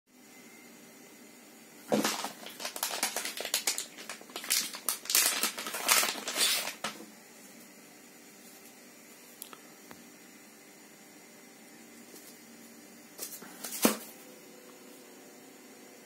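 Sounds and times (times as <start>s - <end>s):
plastic bag crinkling: 1.9s - 7.0s.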